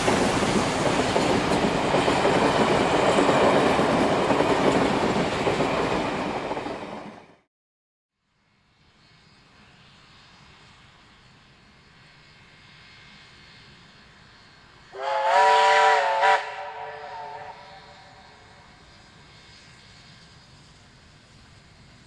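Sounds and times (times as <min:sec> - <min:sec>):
approaching train rumble: 0:00.0 - 0:07.5, 0:08.3 - 0:22.0
steam locomotive whistle: 0:14.9 - 0:19.0.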